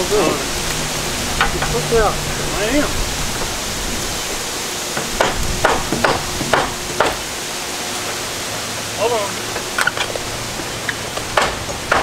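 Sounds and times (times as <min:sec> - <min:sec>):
wind rushing: 0:00.0 - 0:07.4
hammer driving nails into wood: 0:05.2 - 0:07.2, 0:11.3 - 0:12.0.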